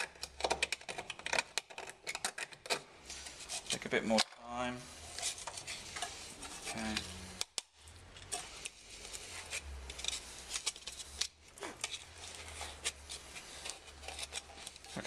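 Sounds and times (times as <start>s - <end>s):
plastic bowl clicks and scrapes: 8.2s - 15.0s.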